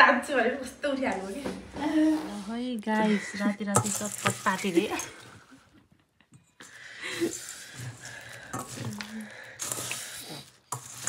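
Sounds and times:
spoon stirring puffed rice: 3.7 - 5.3, 6.6 - 11.0.

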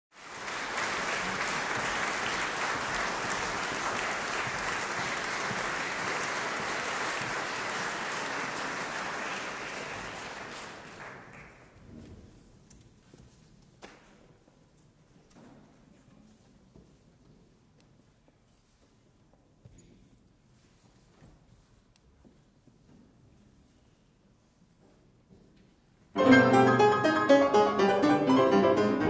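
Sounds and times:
audience applauding: 0.1 - 11.8.

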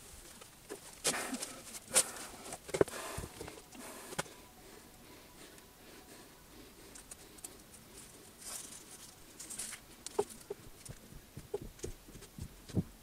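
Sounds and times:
soft rustle and scrape: 7.0 - 12.9.

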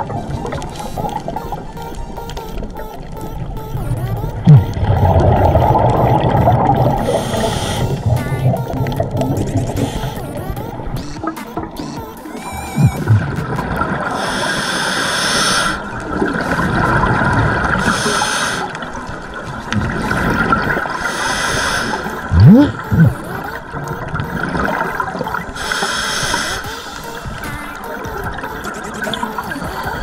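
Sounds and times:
exhaled air bubbles: 0.0 - 30.0
underwater regulator breathing: 0.4 - 2.6, 3.6 - 11.2, 14.0 - 19.0, 19.7 - 23.3, 24.7 - 30.0.

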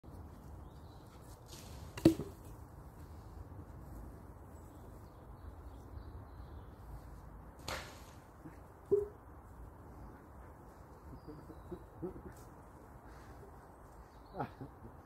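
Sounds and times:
wooden stick landing with knock: 2.0 - 2.5.

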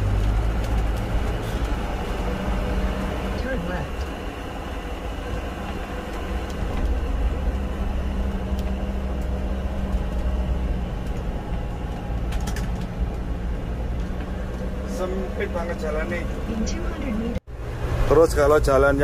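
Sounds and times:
motorhome engine drone: 0.0 - 19.0.

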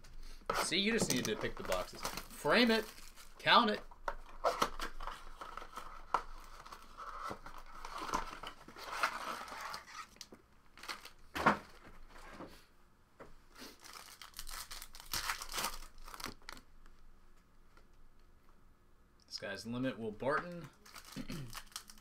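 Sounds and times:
foil wrappers crinkling: 0.7 - 3.7, 10.8 - 11.2, 13.7 - 16.6, 20.6 - 22.0.

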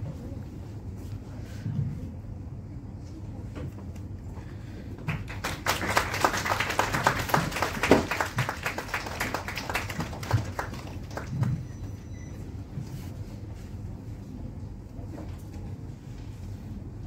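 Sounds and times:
audience applauding: 5.0 - 11.7.

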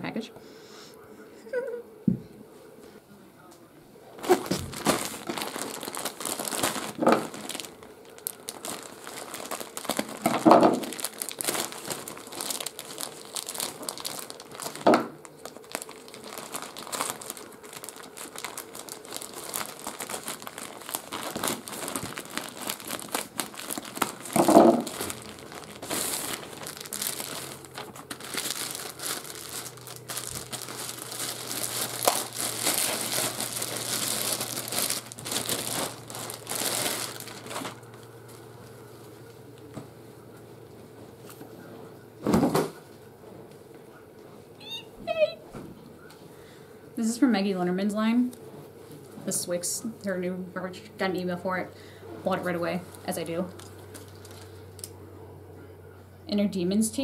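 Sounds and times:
plastic bags crinkling: 4.2 - 41.4, 44.6 - 45.3, 51.0 - 55.0.

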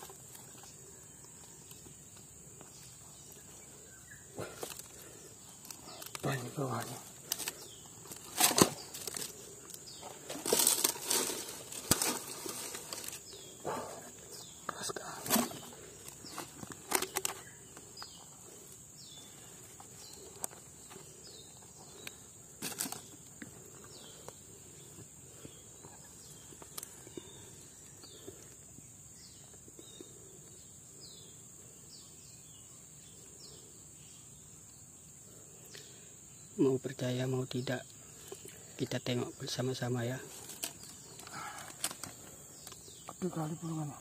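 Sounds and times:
hands digging through dry soil: 4.5 - 13.5.

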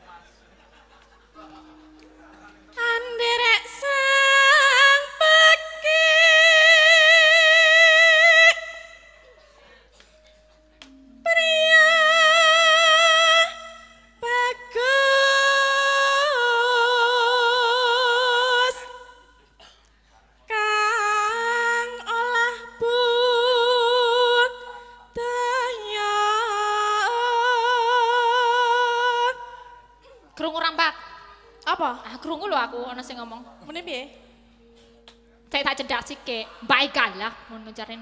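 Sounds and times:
woman singing high held notes: 10.8 - 19.3.

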